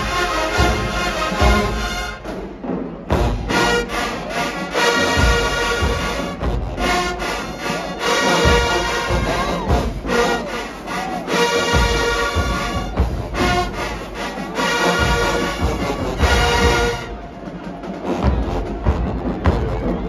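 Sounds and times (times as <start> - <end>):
bass drums: 0.0 - 4.0, 5.1 - 7.4, 8.4 - 10.4, 11.7 - 14.0, 15.0 - 17.2, 18.2 - 20.0
brass horns: 0.0 - 20.0
timpani: 0.0 - 20.0.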